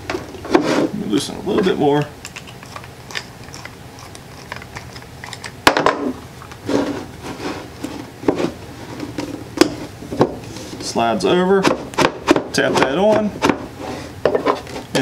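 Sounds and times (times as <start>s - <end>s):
knocks and rubbing of rubber coupling: 11.6s - 15.0s.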